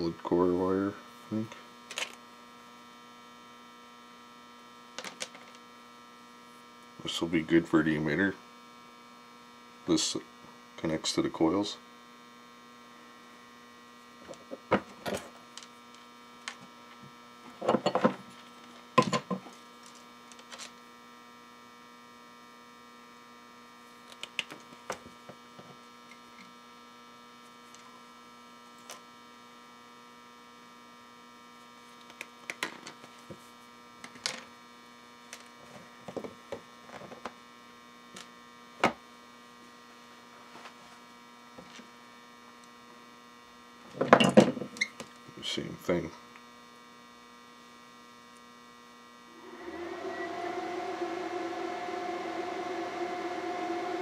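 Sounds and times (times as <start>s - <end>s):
inverter electrical hum: 42.0s - 54.0s.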